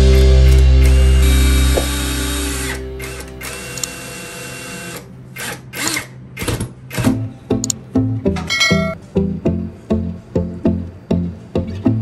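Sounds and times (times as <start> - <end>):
background music: 0.0 - 3.7, 7.0 - 12.0.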